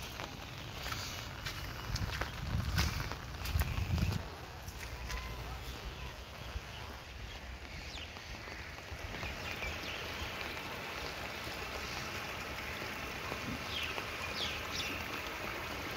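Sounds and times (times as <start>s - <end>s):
rain falling on standing water: 0.0s - 15.9s.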